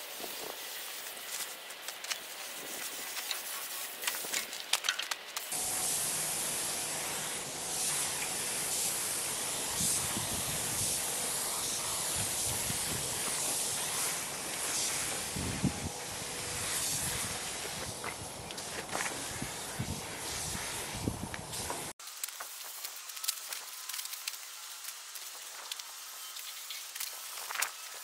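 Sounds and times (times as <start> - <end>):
spray gun hissing: 0.0 - 4.4, 5.4 - 28.0.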